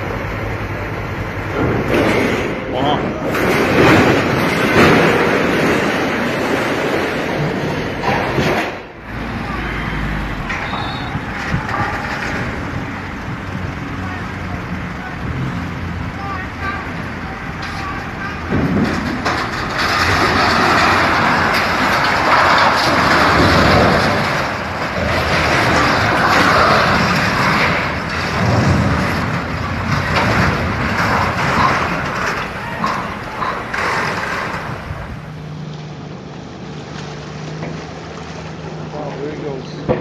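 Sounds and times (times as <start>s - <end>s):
highway road noise: 0.0s - 40.0s
low engine hum: 8.8s - 40.0s
wind noise: 10.8s - 13.9s.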